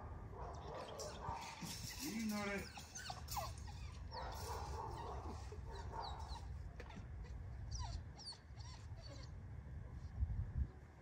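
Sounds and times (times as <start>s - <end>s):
puppy whimpering: 1.7s - 4.2s, 5.1s - 9.3s
wind buffeting microphone: 10.1s - 10.8s.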